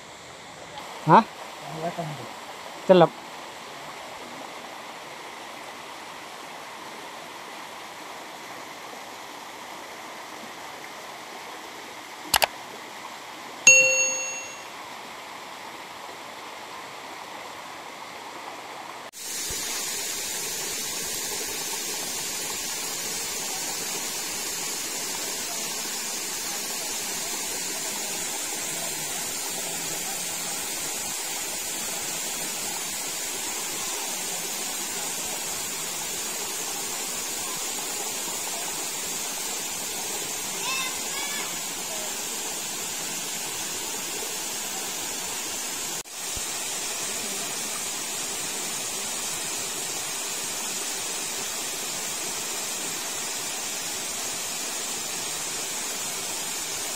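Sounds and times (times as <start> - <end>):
stream and waterfall rushing: 0.0 - 56.9
click: 12.3 - 12.5
bright ringing ding: 13.7 - 14.7.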